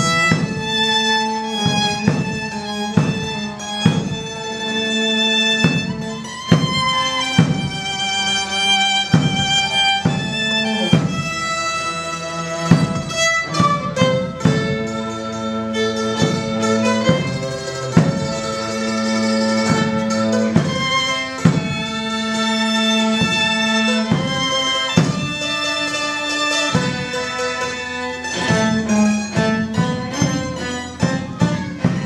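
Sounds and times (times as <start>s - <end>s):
bowed strings melody: 0.0s - 32.0s
bass drum beat: 5.6s - 15.0s.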